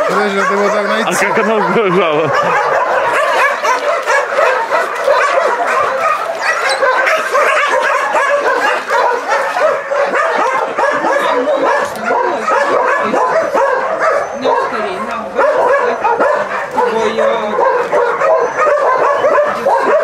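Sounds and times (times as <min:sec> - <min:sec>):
dogs barking and yapping: 0:00.0 - 0:20.0.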